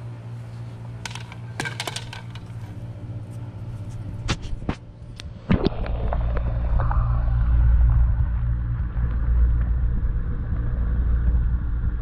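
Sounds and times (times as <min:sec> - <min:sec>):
steady low hum: 0:00.0 - 0:12.0
loud low rumble: 0:02.8 - 0:12.0.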